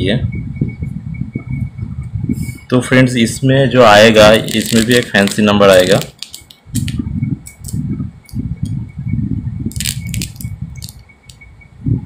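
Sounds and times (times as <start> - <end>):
paper rubbing and handling: 4.1 - 7.8
banknotes flicking and snapping: 4.2 - 7.8, 9.7 - 11.4.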